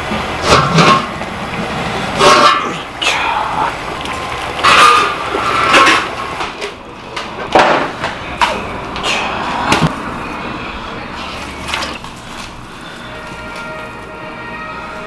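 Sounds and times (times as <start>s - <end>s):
kitchen knocks and clatters: 4.6s - 9.1s.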